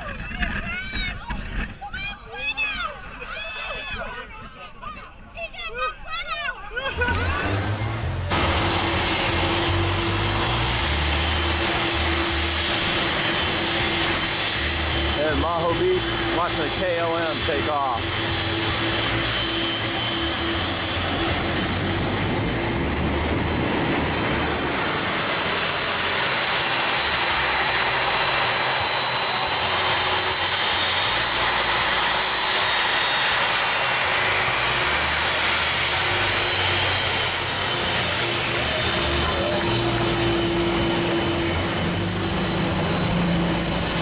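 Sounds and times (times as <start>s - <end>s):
jet blast rushing: 6.8s - 44.0s
thin high whine: 7.0s - 34.1s.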